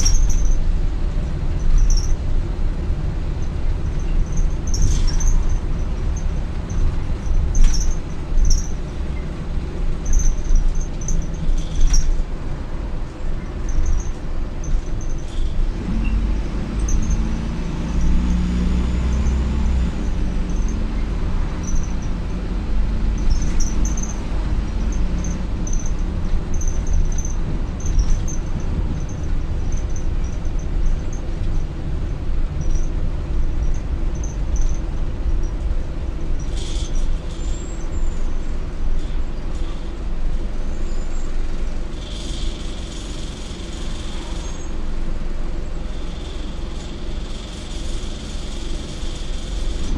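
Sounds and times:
interior rattles clicking: 0:00.0 - 0:15.7, 0:16.7 - 0:35.8
bus diesel engine: 0:00.0 - 0:49.9
road rumble: 0:00.0 - 0:49.9.

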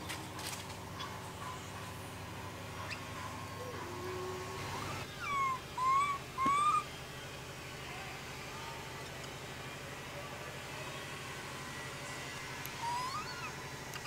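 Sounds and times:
faint low monkey call: 0:00.9 - 0:02.0, 0:02.7 - 0:07.0, 0:12.7 - 0:14.0
monkey short tonal cries: 0:03.6 - 0:06.8, 0:12.8 - 0:13.6.

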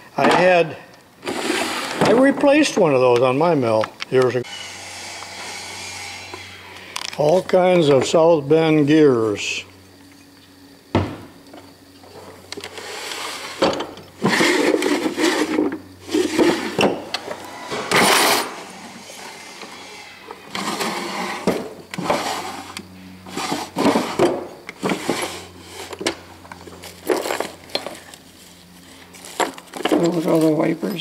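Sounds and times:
wooden drawers scraping: 0:01.2 - 0:02.9, 0:12.6 - 0:26.1.

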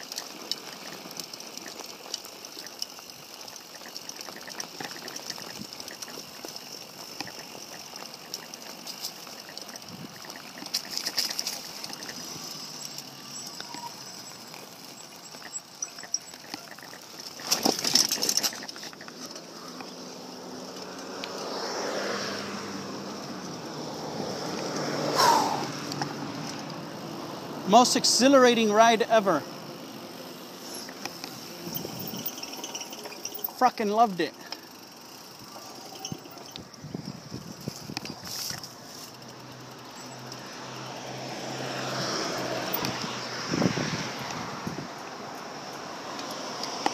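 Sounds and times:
bike clatter: 0:00.0 - 0:21.4, 0:30.6 - 0:40.6
bike tyres crunching on gravel: 0:00.0 - 0:44.5
wind on microphone: 0:36.6 - 0:38.2, 0:43.4 - 0:45.0.

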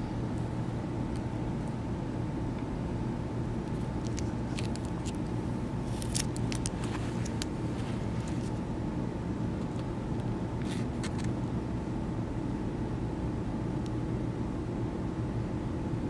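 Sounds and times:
tape peeling crackles: 0:03.6 - 0:08.6.

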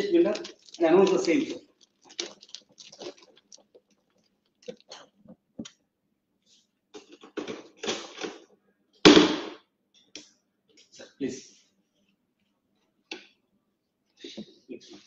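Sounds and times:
paper coupons rustling in plastic box: 0:00.0 - 0:05.1.

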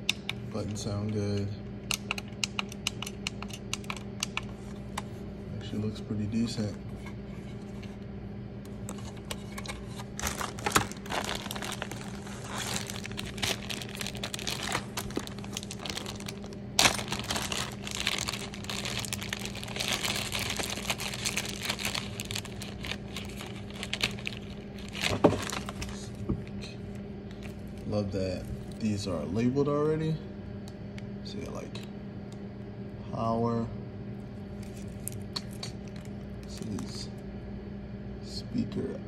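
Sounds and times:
low steady hum: 0:00.0 - 0:39.0
plastic bag crinkling: 0:10.1 - 0:26.2.

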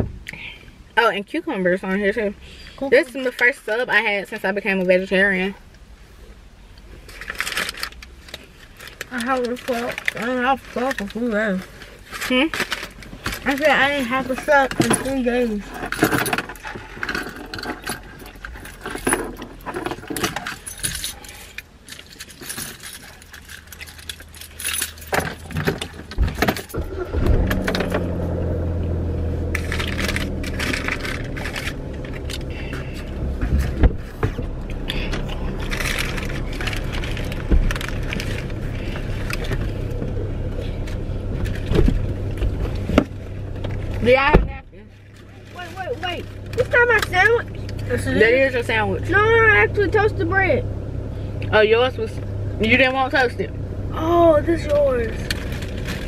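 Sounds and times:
low car hum: 0:00.0 - 0:56.0
paper wrappers crinkling: 0:07.0 - 0:14.8, 0:20.5 - 0:26.1, 0:29.6 - 0:33.1, 0:34.0 - 0:40.0.

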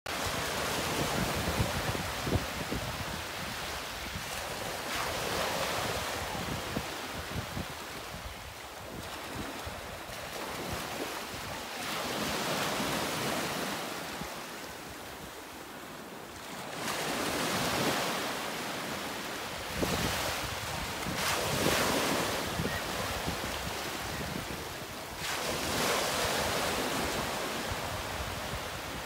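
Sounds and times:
sea waves washing in: 0:00.1 - 0:29.0
wind rumbling on microphone: 0:00.2 - 0:13.4, 0:19.5 - 0:29.0.

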